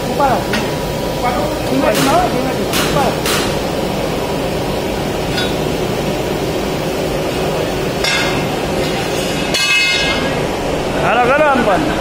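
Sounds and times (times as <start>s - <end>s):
furnace and machinery running: 0.0s - 12.0s.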